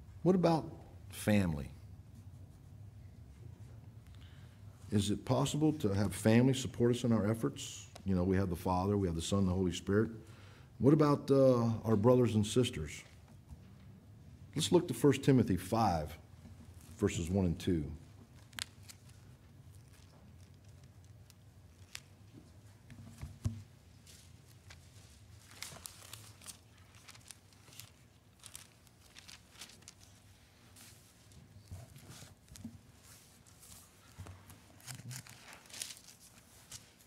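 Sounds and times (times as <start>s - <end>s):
book pages rustling: 18.2s - 37.0s.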